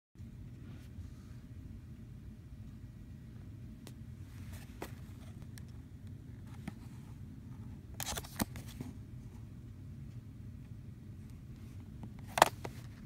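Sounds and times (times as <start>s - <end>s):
steady low hum: 0.2s - 13.0s
cardboard box clicks and crinkles: 8.0s - 8.9s.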